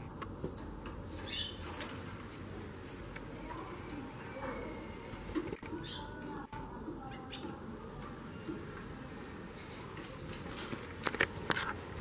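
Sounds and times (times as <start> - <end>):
bird chirping: 1.2 - 1.7, 5.6 - 7.6.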